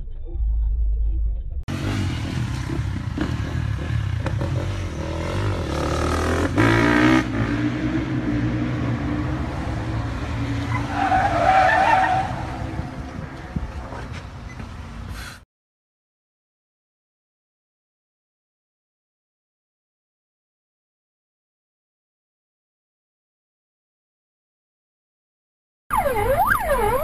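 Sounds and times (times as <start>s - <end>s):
tyres squealing: 10.6s - 12.7s.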